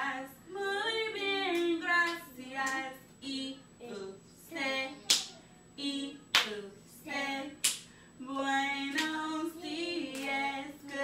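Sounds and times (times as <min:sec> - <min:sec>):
woman and girls singing: 0:00.0 - 0:11.0
hand claps: 0:05.1 - 0:05.4, 0:06.3 - 0:06.6, 0:07.6 - 0:07.9, 0:08.9 - 0:09.2, 0:10.1 - 0:11.0.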